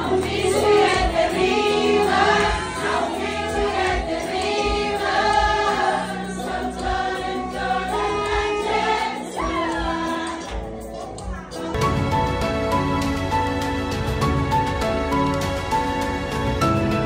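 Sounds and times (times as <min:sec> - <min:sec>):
choir singing: 0:00.0 - 0:10.6.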